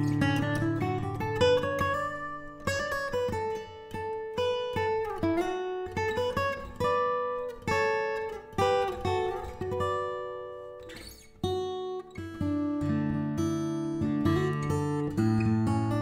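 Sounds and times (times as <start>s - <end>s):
acoustic guitar picked slowly: 0.0s - 16.0s.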